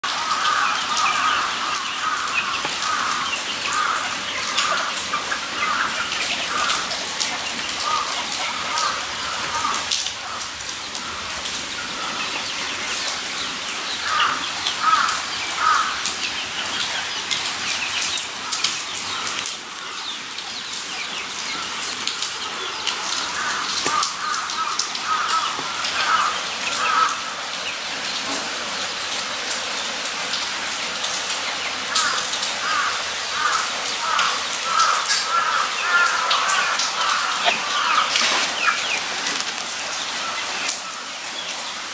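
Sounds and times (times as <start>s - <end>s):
guinea pigs squeaky clucking: 37.4s - 39.0s.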